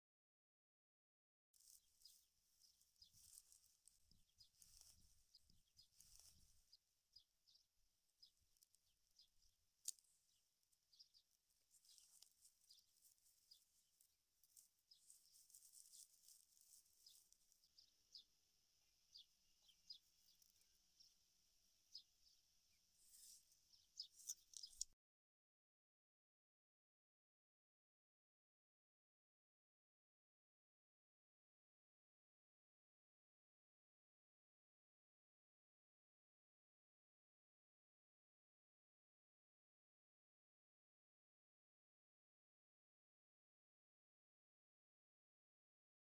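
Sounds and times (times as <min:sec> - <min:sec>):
palm fibres rustling: 0:01.6 - 0:06.8, 0:11.4 - 0:17.6, 0:23.0 - 0:24.9
small birds chirping: 0:01.6 - 0:25.0.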